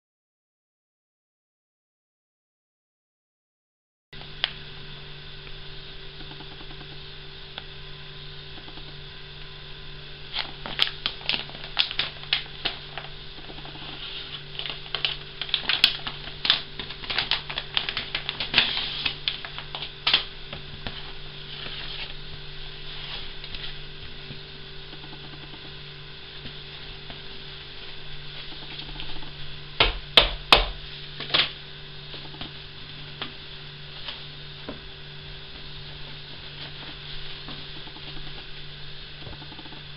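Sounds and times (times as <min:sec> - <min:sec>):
steady electrical hum: 0:04.2 - 0:39.9
plastic packaging crinkling: 0:10.3 - 0:22.2.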